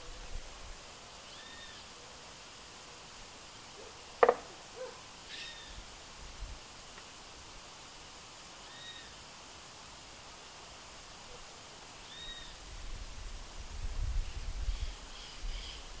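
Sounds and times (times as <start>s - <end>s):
short high bird calls: 1.2s - 1.9s, 5.3s - 5.8s, 8.6s - 9.2s, 12.0s - 12.6s
woodpecker knocking on wood: 4.2s - 4.6s.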